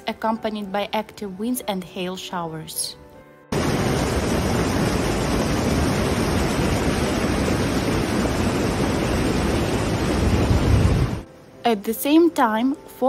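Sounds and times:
water rushing over a weir: 3.5s - 11.2s.

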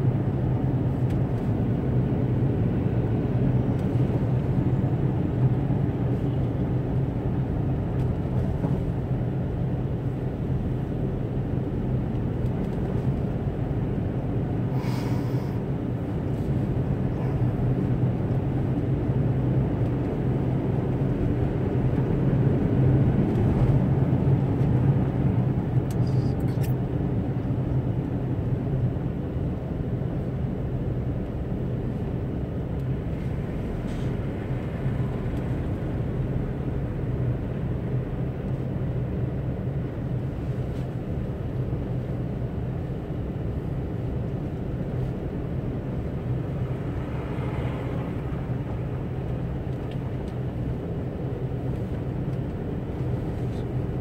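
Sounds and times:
engine and tyre rumble: 0.0s - 54.0s.

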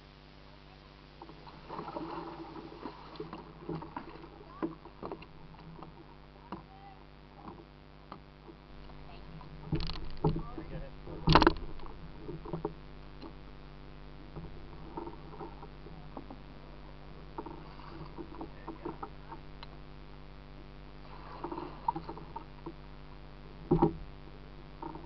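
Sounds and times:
low background noise: 0.0s - 25.0s
water lapping against hull: 0.5s - 25.0s
paddle splashes: 0.9s - 7.8s, 8.4s - 13.5s, 14.2s - 20.0s, 20.9s - 25.0s
light knocks on hull: 7.4s - 13.4s, 23.6s - 24.1s.

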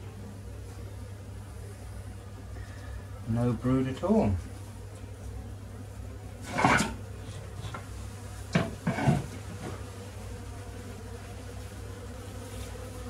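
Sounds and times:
honeybees buzzing: 0.0s - 13.0s.

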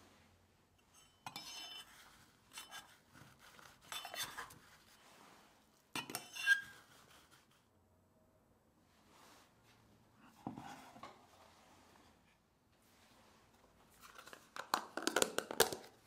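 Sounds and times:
metal utensil scraping metal: 0.9s - 5.0s, 6.0s - 7.3s.

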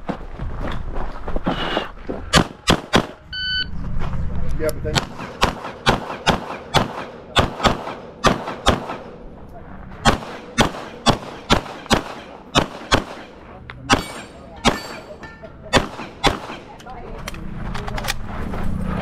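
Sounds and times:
rapid handgun shots: 2.3s - 3.2s, 5.0s - 9.2s, 10.0s - 15.1s, 15.7s - 16.8s.

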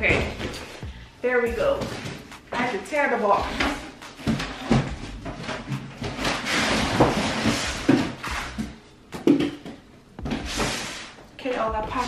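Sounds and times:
cardboard tearing and rustling: 3.5s - 8.8s.

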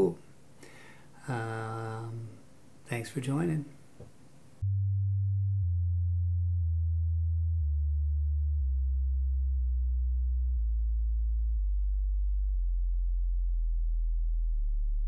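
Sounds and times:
descending electronic sine tone: 4.6s - 15.0s.

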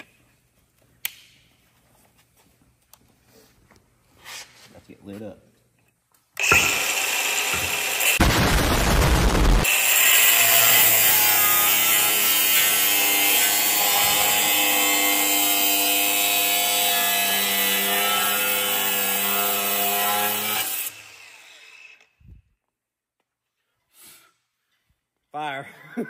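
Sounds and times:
power tool cutting metal: 6.4s - 22.2s.

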